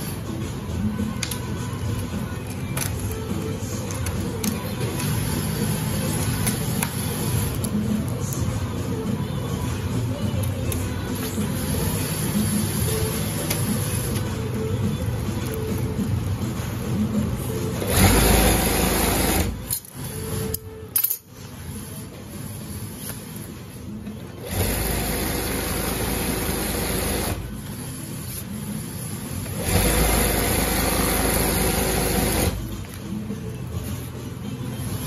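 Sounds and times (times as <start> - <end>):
sewing machine stitching: 17.8 - 19.6, 24.4 - 27.9, 28.7 - 32.6.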